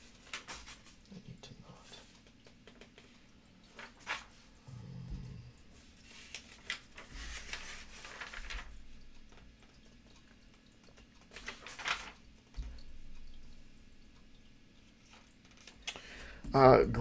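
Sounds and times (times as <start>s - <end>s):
paper pages flipping: 0.0s - 1.1s, 2.0s - 4.5s, 5.8s - 9.8s, 10.9s - 12.6s.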